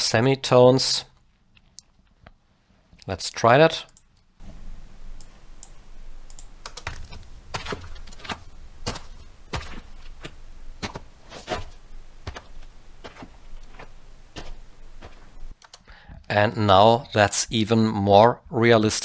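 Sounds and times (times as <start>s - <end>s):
boot footsteps on rocky dirt: 6.8s - 15.6s.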